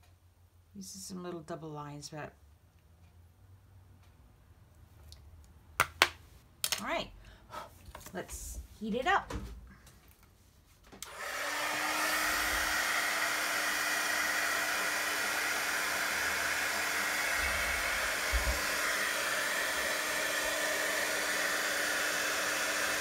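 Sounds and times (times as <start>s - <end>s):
heat tool fan hiss: 11.0s - 23.0s.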